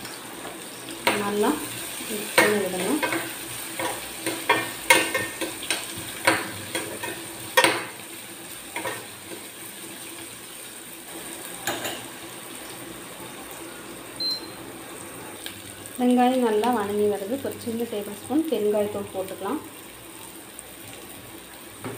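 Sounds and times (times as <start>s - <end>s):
frying sizzle: 0.0s - 21.9s.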